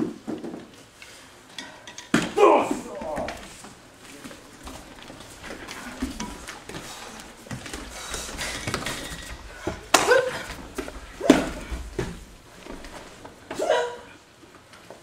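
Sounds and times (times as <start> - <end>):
knocks and shuffling: 0.0 - 13.7
short vocal shout: 2.4 - 3.5.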